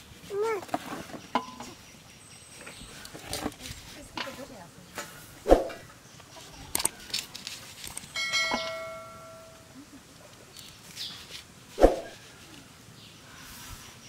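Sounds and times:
bell chime: 8.2 - 9.6.

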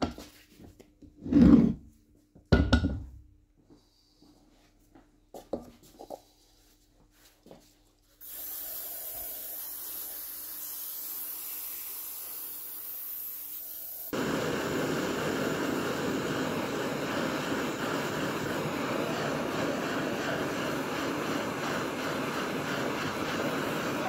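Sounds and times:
aerosol spray can hissing: 8.2 - 24.0
gas blowtorch flame: 8.2 - 24.0.

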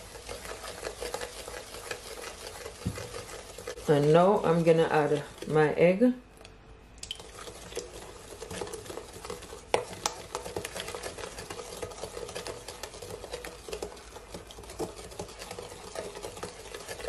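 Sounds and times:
wet stirring in a bowl: 0.0 - 17.0.

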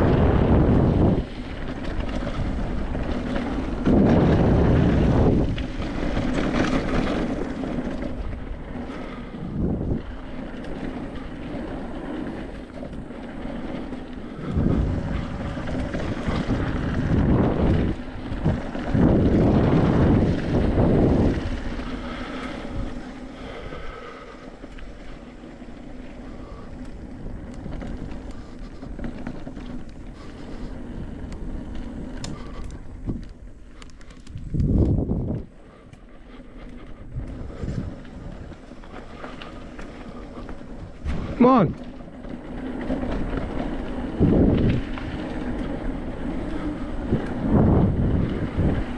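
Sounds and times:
wind buffeting microphone: 0.0 - 48.9.

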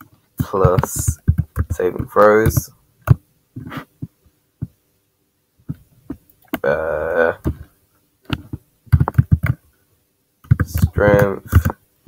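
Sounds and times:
person humming: 6.6 - 7.6
keyboard keystrokes clicking: 8.3 - 9.6.

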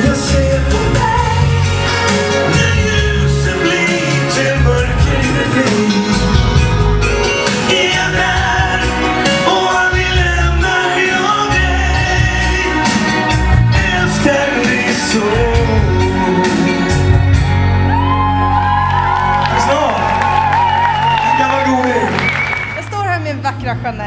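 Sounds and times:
man singing: 0.0 - 6.7, 7.4 - 17.3
live pop band: 0.0 - 24.0.

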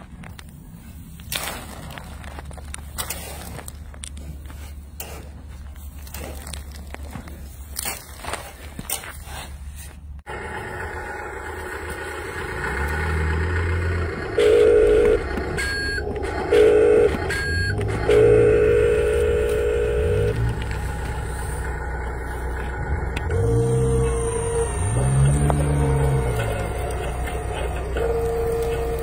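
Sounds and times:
low engine hum: 9.6 - 29.0
motor whine: 10.3 - 29.0
rapid electronic warning beeps: 14.4 - 20.4.

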